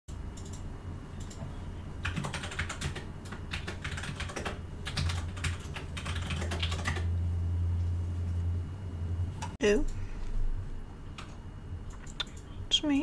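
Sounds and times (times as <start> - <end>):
steady low hum: 0.1 - 13.0.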